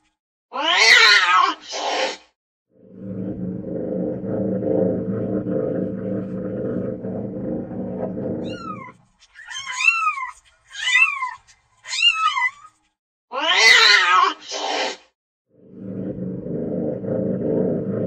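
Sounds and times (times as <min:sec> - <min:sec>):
cat purring: 0:03.1 - 0:08.9.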